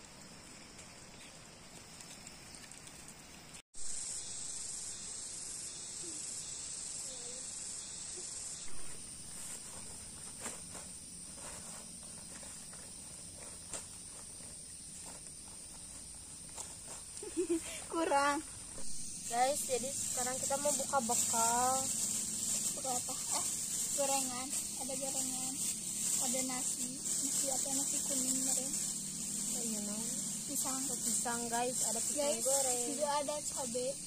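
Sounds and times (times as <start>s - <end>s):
insects droning: 0.0s - 34.0s
banana leaves rustling: 8.7s - 34.0s.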